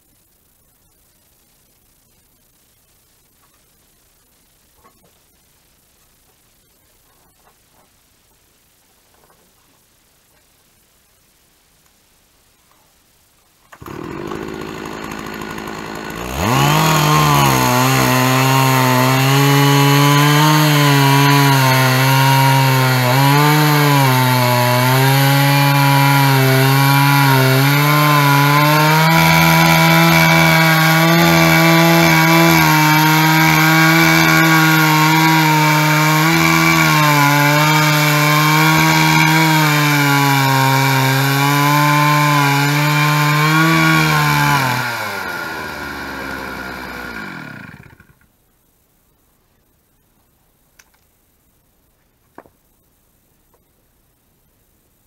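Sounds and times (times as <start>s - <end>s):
chainsaw cutting through log: 13.7s - 48.2s.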